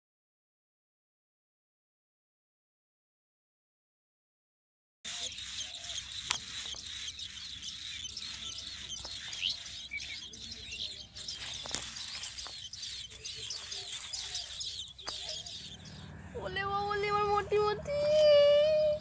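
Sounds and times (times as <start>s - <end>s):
nestlings cheeping: 5.1s - 19.0s.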